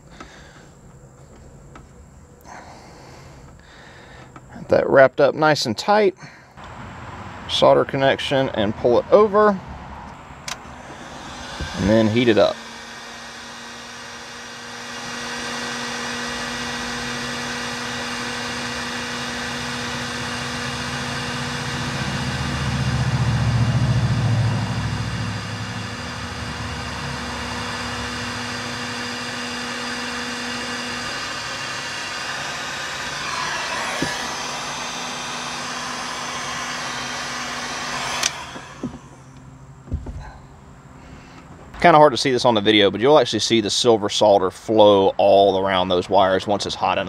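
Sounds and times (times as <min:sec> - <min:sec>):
heat gun blowing hiss: 0:10.5 - 0:39.4
low rumble: 0:20.8 - 0:28.6
heat gun switch click: 0:38.1 - 0:38.7.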